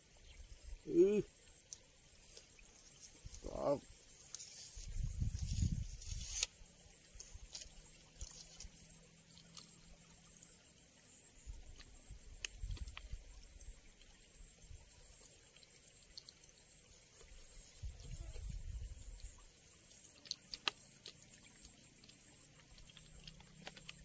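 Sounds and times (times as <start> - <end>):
insects droning: 0.0 - 24.0.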